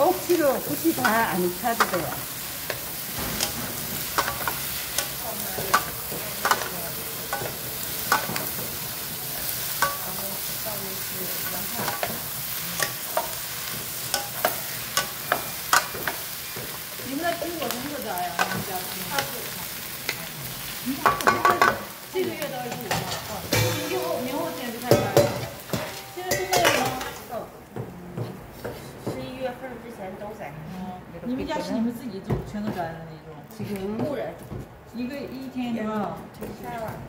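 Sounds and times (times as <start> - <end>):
food sizzling in a wok: 0.0 - 27.5.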